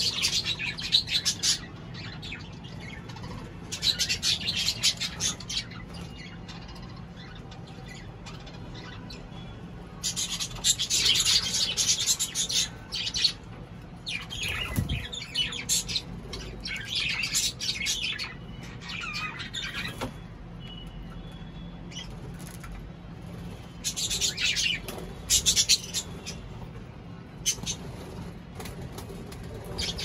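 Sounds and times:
cockatiels chirping and calling: 0:00.0 - 0:09.3, 0:10.0 - 0:13.4, 0:14.0 - 0:21.0, 0:23.8 - 0:26.5, 0:27.4 - 0:30.0.

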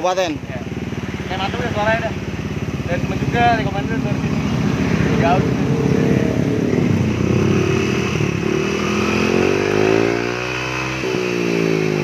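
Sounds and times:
scooter engine revving and idling: 0:00.0 - 0:12.0.

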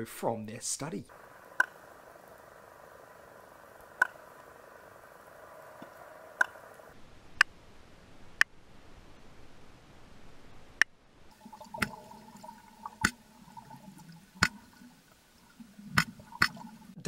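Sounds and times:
steady hiss: 0:00.3 - 0:17.0
ray clicking underwater: 0:01.1 - 0:07.5, 0:11.4 - 0:17.0.

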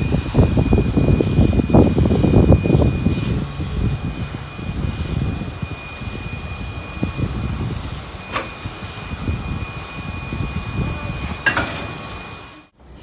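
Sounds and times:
steam hissing: 0:00.0 - 0:12.8
steam locomotive rumble: 0:00.0 - 0:13.0
metallic coupling clanks: 0:11.4 - 0:12.0.

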